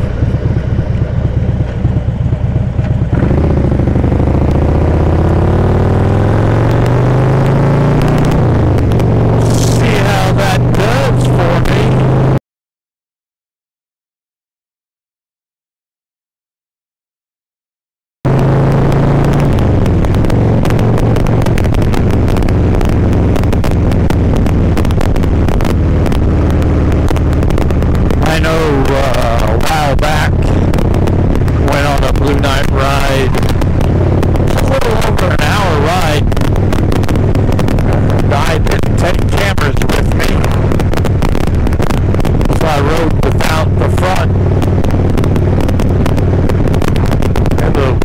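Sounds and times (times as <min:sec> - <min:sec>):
wind buffeting microphone: 0:00.0 - 0:05.2, 0:18.3 - 0:48.0
motorcycle engine accelerating: 0:00.0 - 0:12.4, 0:18.3 - 0:48.0.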